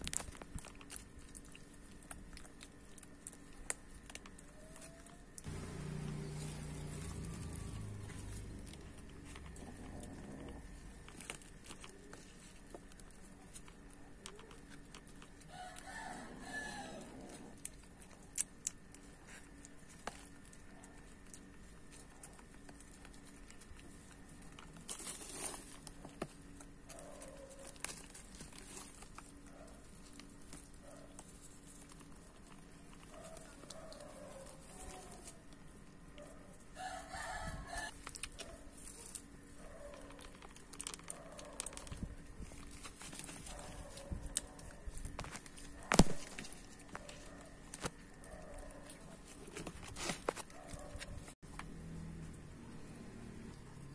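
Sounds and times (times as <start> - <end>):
rooster crowing: 15.5 - 17.3, 36.8 - 38.0.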